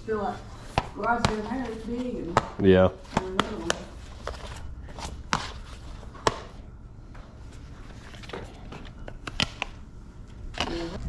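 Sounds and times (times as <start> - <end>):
low steady rumble: 9.9 - 11.0.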